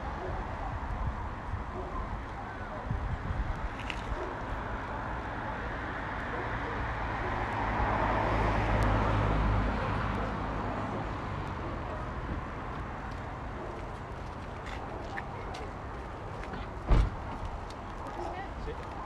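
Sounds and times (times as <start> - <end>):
road traffic noise: 0.0 - 19.0
vehicle passing close by: 5.9 - 12.6.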